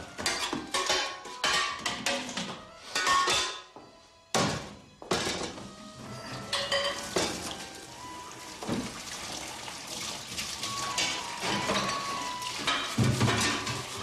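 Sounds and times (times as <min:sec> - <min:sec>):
dishes and pans clattering: 0:00.0 - 0:03.8, 0:04.4 - 0:07.7, 0:10.6 - 0:14.0.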